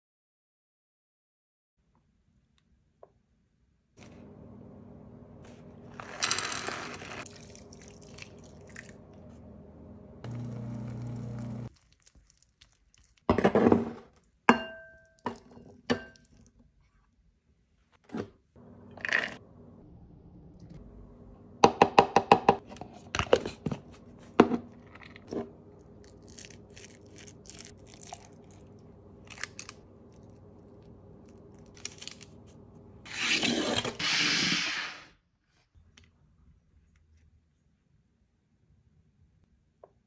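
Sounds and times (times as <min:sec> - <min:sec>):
metal scoop scraping plastic jar: 0:05.9 - 0:07.4, 0:33.1 - 0:35.1
kitchen knocks and clinks: 0:13.3 - 0:16.2.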